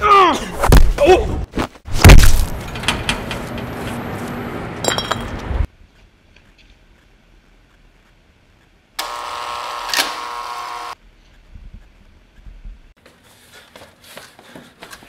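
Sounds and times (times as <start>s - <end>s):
loud electric buzz: 9.0s - 11.0s.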